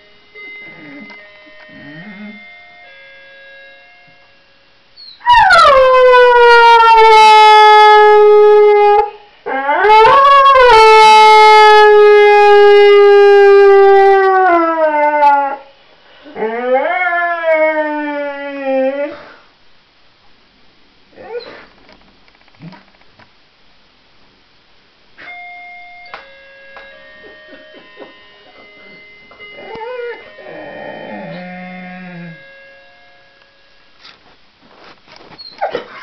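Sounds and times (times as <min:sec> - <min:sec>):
electronic door chime: 0:00.3 - 0:04.2, 0:25.2 - 0:33.7
dog howling: 0:29.5 - 0:32.5.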